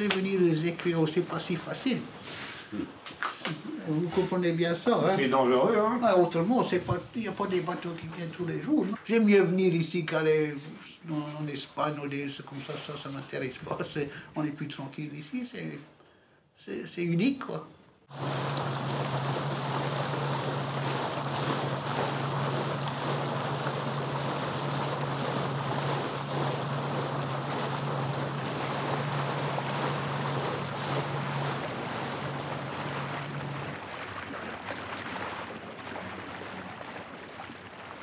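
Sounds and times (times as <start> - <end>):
motorboat engine drone: 18.1 - 38.0
rushing water: 18.1 - 38.0.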